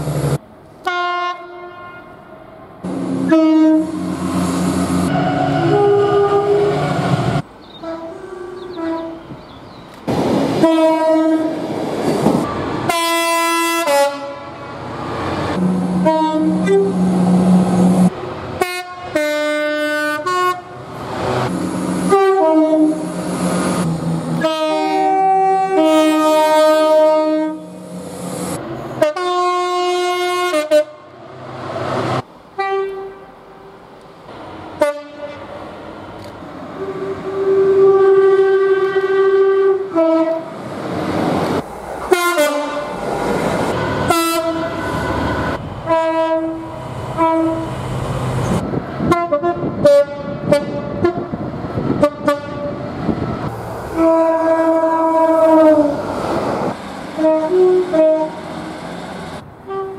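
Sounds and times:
rumble of approaching trains: 0.0s - 59.9s
train horn blasts: 0.8s - 2.2s, 2.9s - 7.1s, 7.8s - 9.4s, 10.6s - 11.6s, 12.9s - 14.6s, 15.6s - 17.6s, 18.6s - 20.8s, 22.0s - 23.1s, 24.4s - 27.8s, 29.0s - 31.2s, 32.6s - 33.6s, 34.8s - 35.5s, 36.8s - 40.6s, 42.1s - 43.0s, 44.1s - 44.8s, 45.8s - 47.7s, 49.0s - 51.4s, 52.0s - 52.8s, 54.0s - 56.0s, 57.2s - 58.5s, 59.6s - 59.9s.

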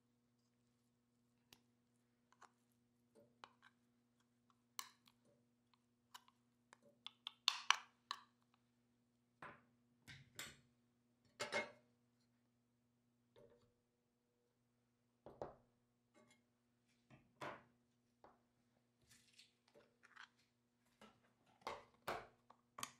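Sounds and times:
kitchenware clicks and knocks: 11.4s - 11.8s.

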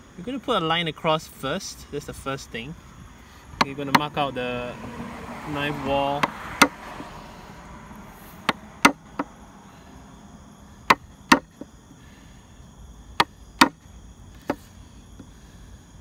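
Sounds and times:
mallet tapping chisel into wood: 8.4s - 9.3s, 10.9s - 11.7s, 13.2s - 13.8s.

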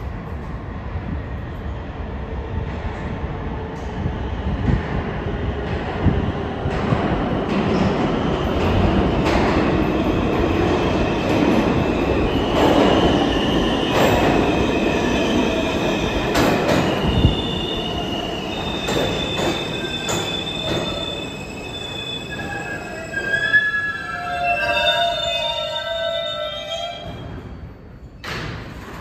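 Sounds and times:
subway train rumbling: 0.0s - 29.0s
train stopping clunk: 16.2s - 23.4s
wheel and brake squealing: 17.0s - 28.3s.

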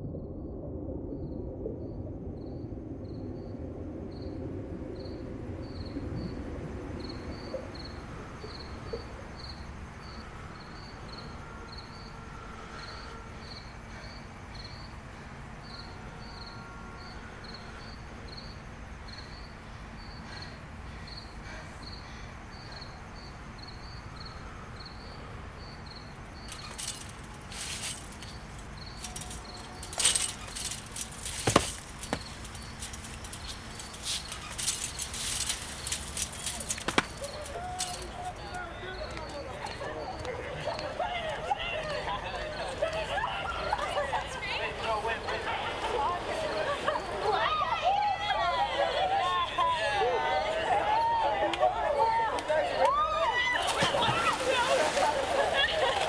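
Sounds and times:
low rumbling hum: 0.0s - 12.7s
cricket chirping: 0.0s - 56.0s.

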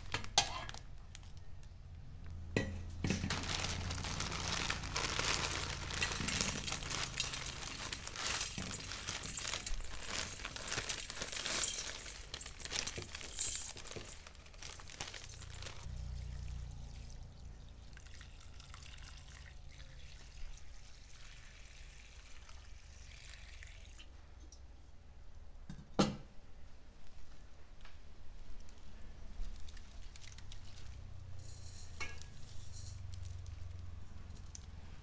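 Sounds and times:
plastic wrapping crinkling: 0.0s - 2.4s, 3.0s - 16.8s, 28.4s - 35.0s
water pouring into bowl: 16.2s - 24.1s.

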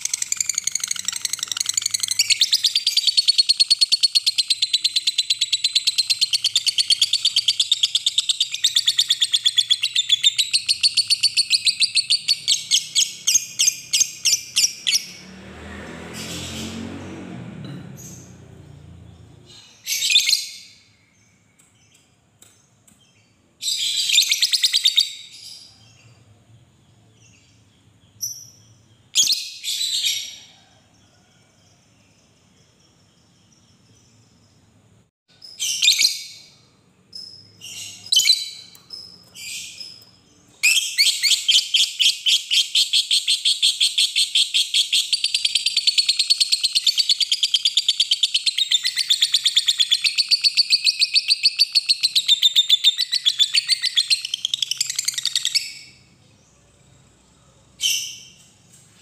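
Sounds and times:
lovebird chirping and chattering: 0.0s - 15.2s, 23.1s - 26.1s, 37.1s - 56.0s, 57.8s - 58.4s.

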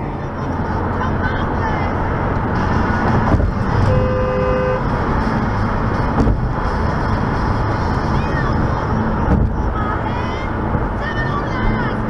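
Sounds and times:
car road rumble on wet highway: 0.0s - 12.0s
car horn blast: 3.7s - 4.9s.

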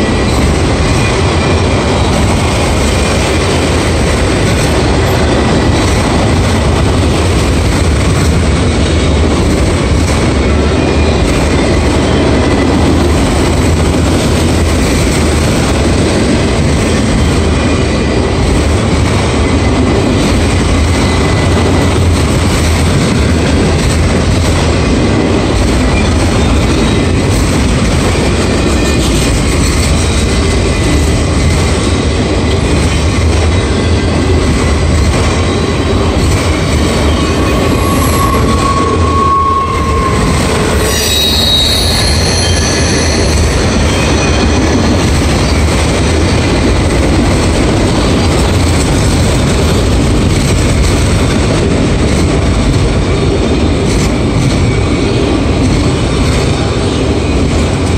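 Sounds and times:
steel wheels on rail: 0.0s - 57.9s
wheels squealing: 36.5s - 45.6s.

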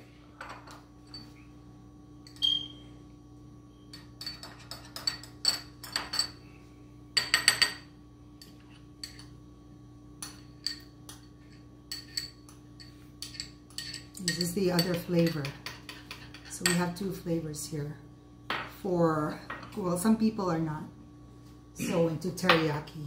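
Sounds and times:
spoon clinking against glass bowl: 2.2s - 2.8s, 3.9s - 6.4s, 10.2s - 16.8s.

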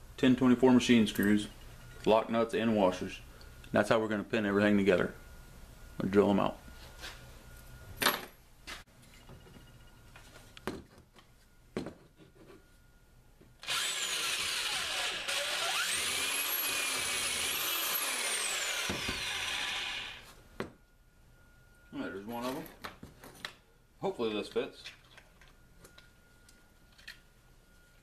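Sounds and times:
drill boring through plastic: 13.6s - 20.2s.

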